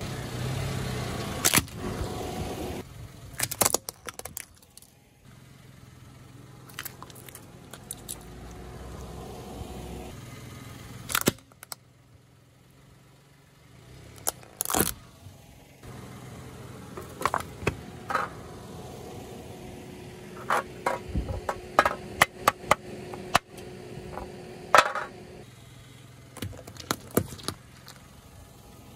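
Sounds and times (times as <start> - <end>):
car engine hum: 0.0 - 28.9
tyres crushing small objects: 3.3 - 4.9, 6.7 - 8.6, 14.2 - 15.0, 17.0 - 18.3, 26.4 - 28.1.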